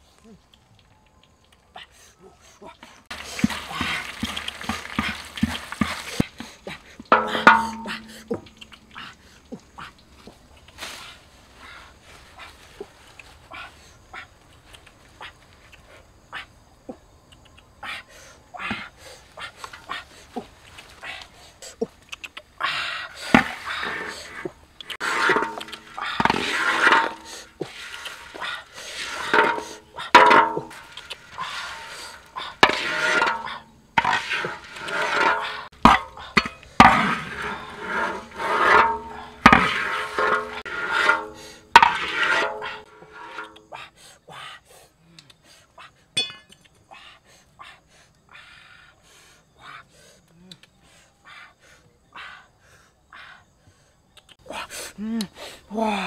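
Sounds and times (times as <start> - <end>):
faint clicks: 0.2 - 1.8, 14.4 - 15.9, 22.0 - 22.5, 45.1 - 45.4, 50.3 - 50.8, 54.1 - 54.4
stirring stick knocking pan: 3.1 - 8.9, 24.9 - 43.5
crickets sizzling in oil: 3.1 - 12.4
wok ringing: 7.1 - 8.5, 46.2 - 46.5
metal spatula scraping a wok: 7.1 - 8.7, 23.3 - 43.6.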